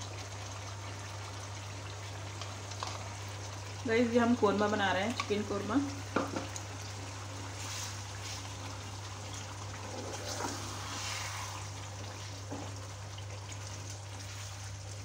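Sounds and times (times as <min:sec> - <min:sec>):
curry sizzling: 0:00.0 - 0:15.0
low steady hum: 0:00.0 - 0:15.0.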